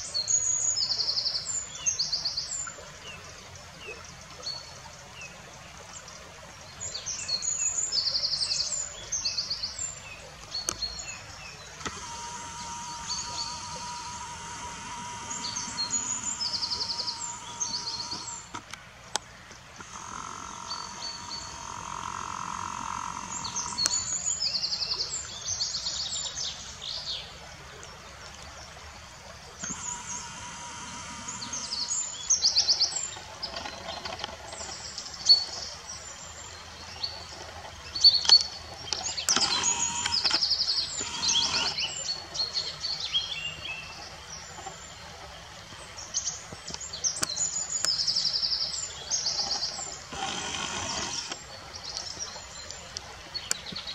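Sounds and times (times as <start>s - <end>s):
river water running: 0.0s - 53.9s
sharp clicks: 11.7s - 24.2s, 29.6s - 32.1s, 38.9s - 41.9s, 49.4s - 51.4s.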